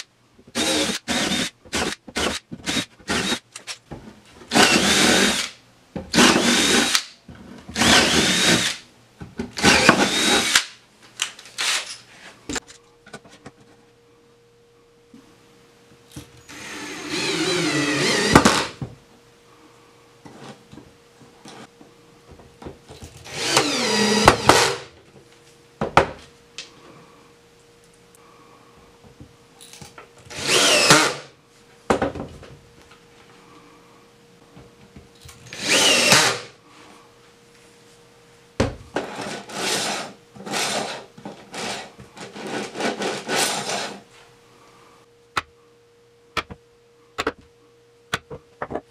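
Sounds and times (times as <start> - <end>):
cordless drill driving screws: 0.6 - 3.4, 4.5 - 5.5, 6.2 - 7.0, 7.8 - 8.8, 9.6 - 10.6, 16.5 - 18.8, 23.3 - 24.8, 30.3 - 31.2, 35.5 - 36.5.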